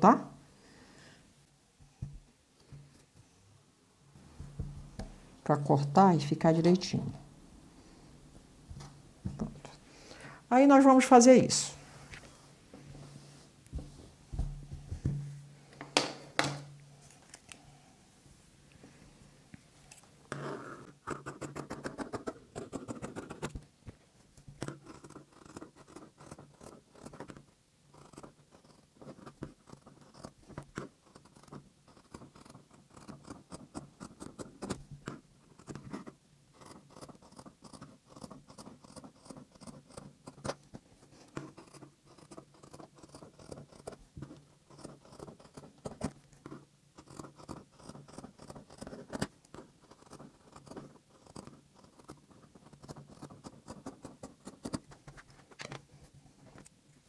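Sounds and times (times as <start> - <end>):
scissors snipping fabric: 29.4 - 34.8, 36.6 - 40.6, 47.0 - 54.8.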